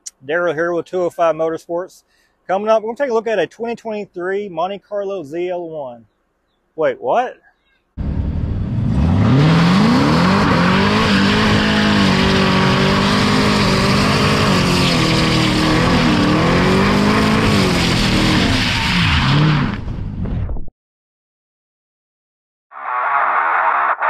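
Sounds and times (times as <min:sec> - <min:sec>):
car engine revving hard: 0:08.0 - 0:19.9.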